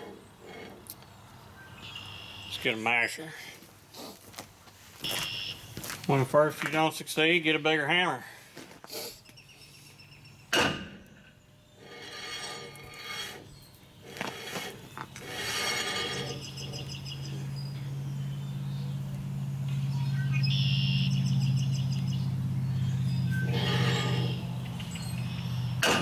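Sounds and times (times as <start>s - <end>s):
steady low hum: 9.5s - 26.0s.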